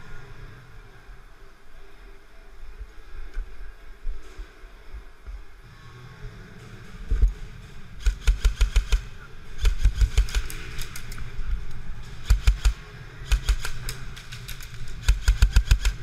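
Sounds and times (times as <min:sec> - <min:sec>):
airsoft gunfire bursts: 0:08.0 - 0:11.0, 0:12.2 - 0:14.0, 0:14.6 - 0:16.0.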